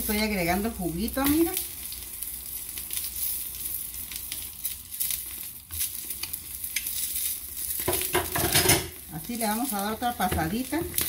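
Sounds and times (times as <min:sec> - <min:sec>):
cactus sizzling in oil: 0:00.0 - 0:11.0.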